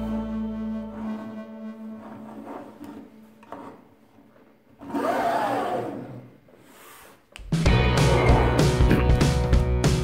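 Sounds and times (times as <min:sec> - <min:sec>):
background music held tones: 0:00.0 - 0:04.0, 0:07.4 - 0:10.0.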